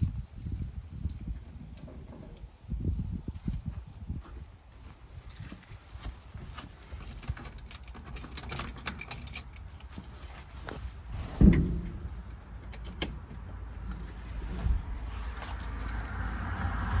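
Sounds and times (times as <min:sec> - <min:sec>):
metallic jangling and clicking: 0:06.8 - 0:10.0
dull thump: 0:11.2 - 0:12.2.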